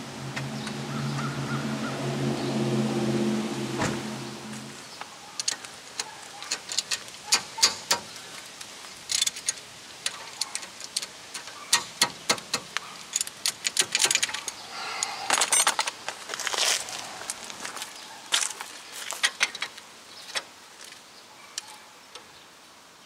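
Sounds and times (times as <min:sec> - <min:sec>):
metal tools clinking: 0:09.0 - 0:16.0.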